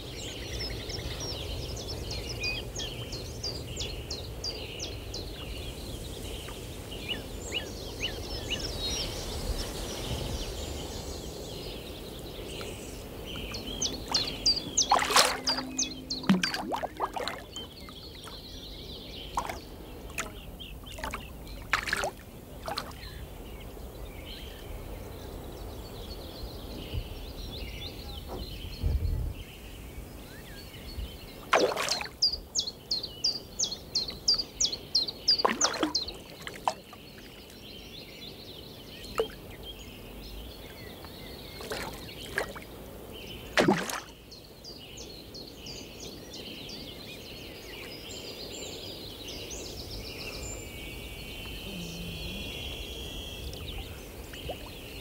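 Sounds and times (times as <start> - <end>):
birds calling: 0.3 - 28.8, 30.1 - 55.0.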